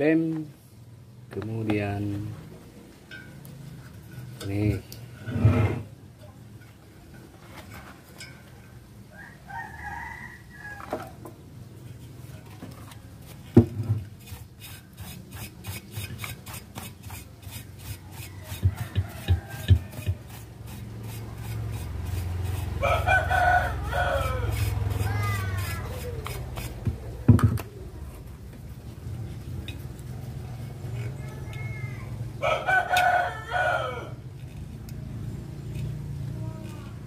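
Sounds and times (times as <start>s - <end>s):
rooster crowing: 9.1s - 11.2s, 18.1s - 20.3s, 22.7s - 25.4s, 32.4s - 34.2s
stiff brush scrubbing metal: 13.8s - 27.2s
knock and thumps: 26.8s - 27.7s.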